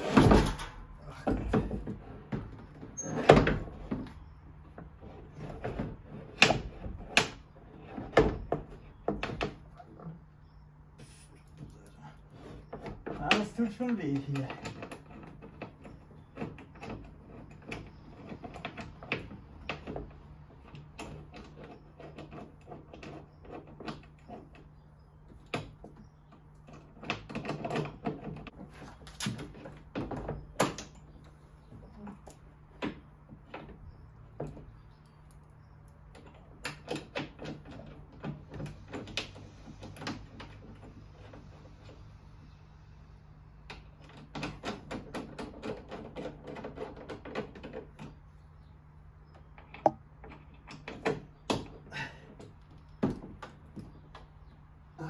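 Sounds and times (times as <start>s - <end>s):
knocks and clicks of handling: 12.4s - 42.0s, 43.6s - 48.3s, 49.2s - 54.7s.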